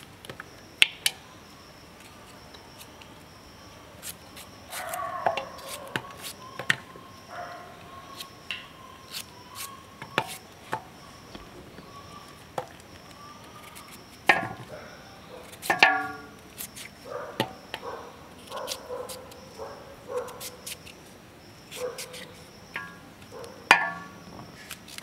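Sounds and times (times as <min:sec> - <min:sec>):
knife cutting carrot: 0:04.0 - 0:06.8
animal calling: 0:04.7 - 0:14.0.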